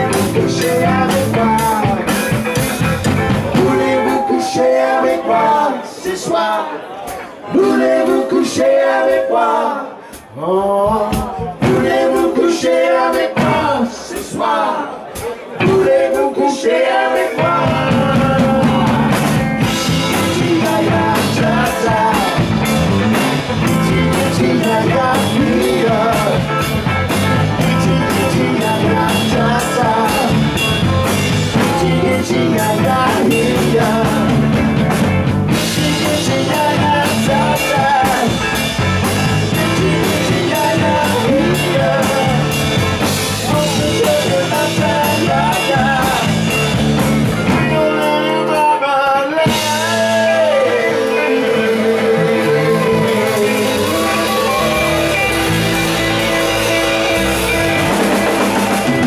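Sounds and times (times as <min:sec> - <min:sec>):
person singing wordless vocals: 0:00.0 - 0:02.3, 0:03.4 - 0:22.8, 0:23.6 - 0:26.7, 0:27.5 - 0:30.7, 0:31.4 - 0:34.7, 0:35.5 - 0:38.6, 0:39.2 - 0:46.6, 0:47.5 - 0:55.3
drum kit: 0:00.0 - 0:05.3, 0:10.2 - 0:14.4, 0:17.2 - 0:48.7, 0:49.4 - 0:59.0
electric guitar: 0:00.0 - 0:05.5, 0:17.4 - 0:59.0
bass guitar: 0:00.0 - 0:06.3, 0:10.7 - 0:14.4, 0:15.1 - 0:16.3, 0:17.2 - 0:59.0.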